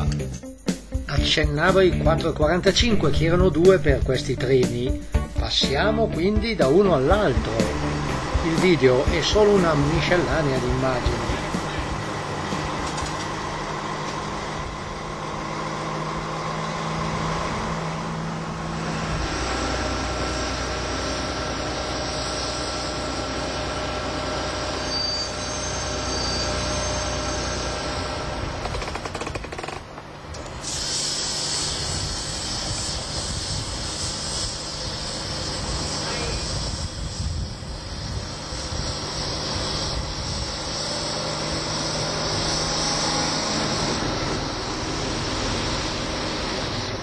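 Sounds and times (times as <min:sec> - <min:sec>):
diesel locomotive engine idling: 0:00.0 - 0:47.0
steady high hiss: 0:30.4 - 0:47.0.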